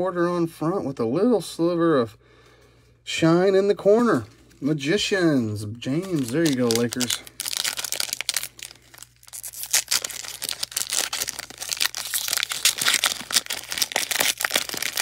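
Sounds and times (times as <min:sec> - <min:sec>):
foil wrapper crinkling and tearing: 0:05.9 - 0:15.0.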